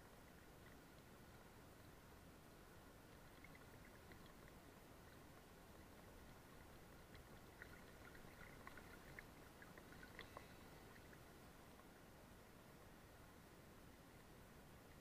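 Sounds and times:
small clicks and droplet ticks: 0.0s - 12.0s
muffled river water lapping: 0.0s - 15.0s.

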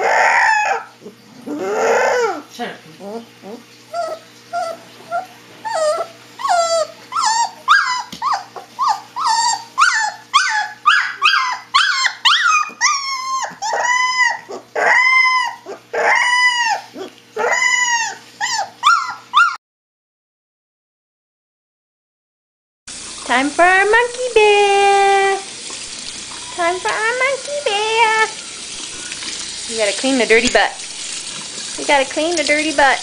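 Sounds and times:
puppy howling: 0.0s - 19.6s
puppy yipping: 0.0s - 19.6s.

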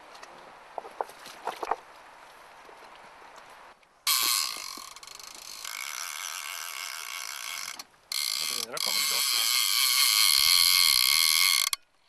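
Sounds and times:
fishing reel drag buzzing: 4.1s - 11.8s.

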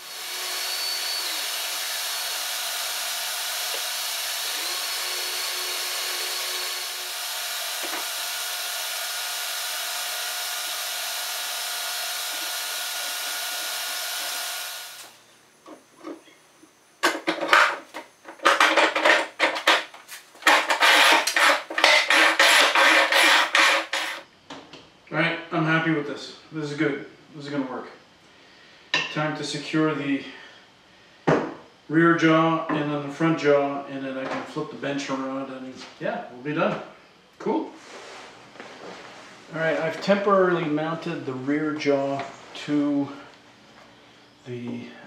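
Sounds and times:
spindle sander running: 0.0s - 15.2s, 20.4s - 24.2s
loud knocks and rattles: 17.1s - 24.2s.

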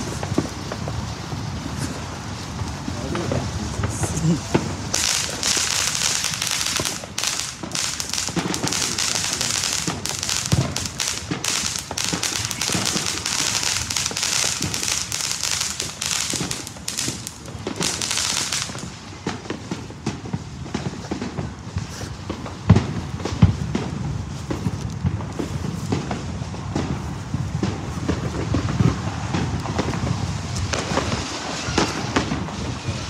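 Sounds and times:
steady hiss: 0.0s - 19.9s
fireworks crackling and popping: 0.0s - 33.0s.

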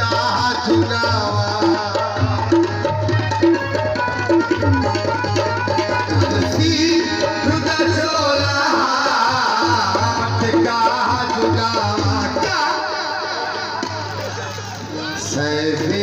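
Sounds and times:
hand drum rhythm: 0.0s - 12.8s
folk melody line: 1.6s - 8.2s.

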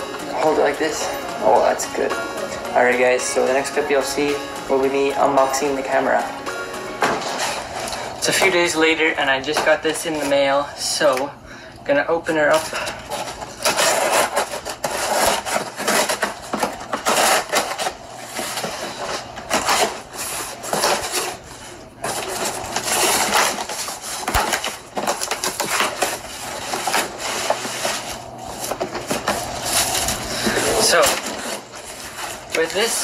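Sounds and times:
cardboard flaps scraping and rustling: 12.5s - 33.0s
scissors cutting packing tape: 13.1s - 18.7s, 22.1s - 33.0s.

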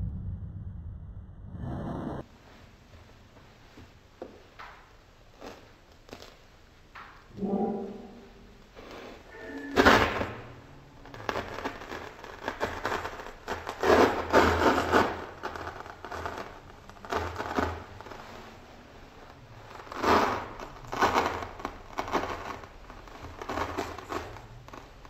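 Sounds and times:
paper crackling and tearing: 11.0s - 25.0s.

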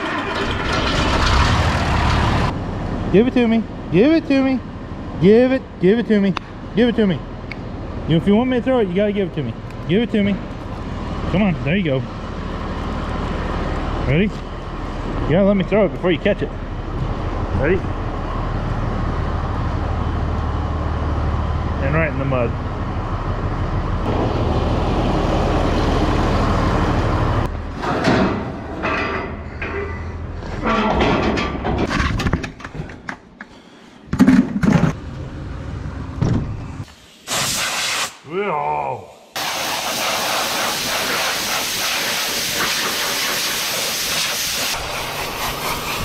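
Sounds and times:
compressed air hissing: 36.9s - 38.2s, 39.3s - 46.0s.

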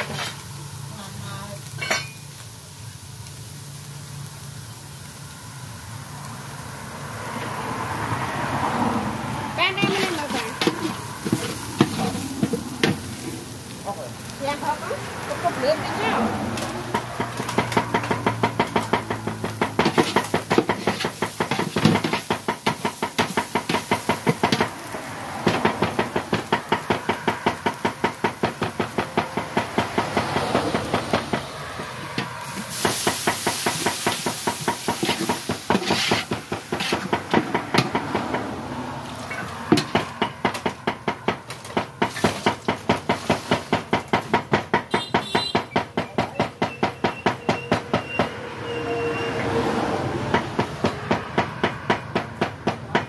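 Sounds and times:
spatula scraping a metal pot: 0.0s - 0.4s, 35.0s - 37.0s
liquid hissing in hot pot: 0.0s - 19.1s, 20.0s - 37.1s.

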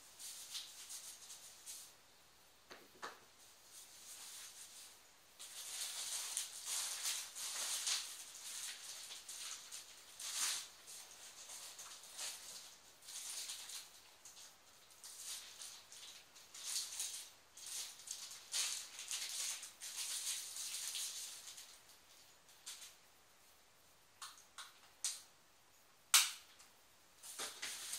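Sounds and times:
plastic packaging crinkling: 3.8s - 23.0s, 27.2s - 27.9s.

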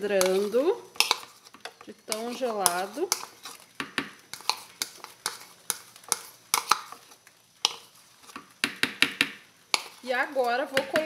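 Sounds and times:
metal spoon scraping a bowl: 0.0s - 3.6s, 4.3s - 7.9s.

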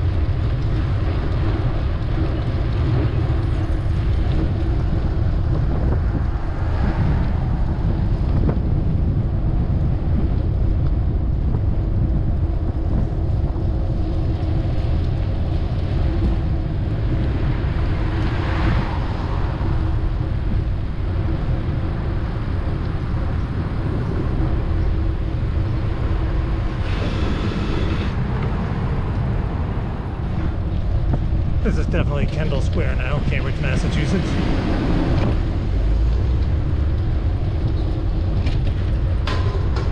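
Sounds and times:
wind rumbling on microphone: 0.0s - 39.9s
street traffic passing: 14.5s - 39.9s.

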